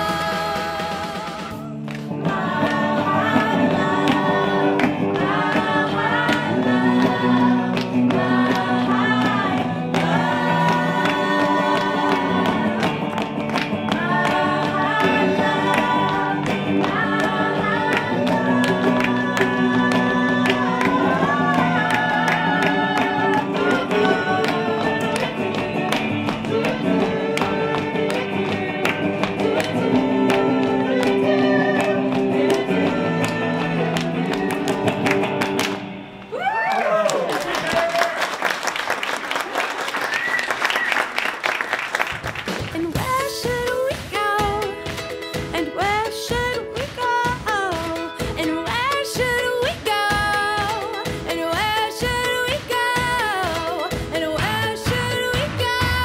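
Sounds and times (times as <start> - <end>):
voices joining in singing: 0.0 - 35.5
women singing: 0.0 - 35.6, 42.7 - 56.0
guitar accompaniment: 0.0 - 36.7, 42.1 - 56.0.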